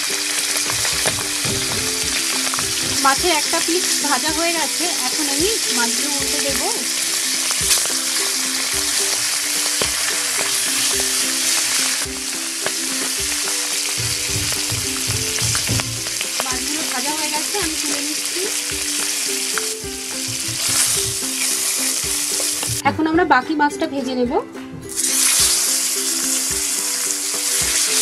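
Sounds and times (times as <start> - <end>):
fish sizzling in hot oil: 0.0 - 22.8, 24.9 - 28.0.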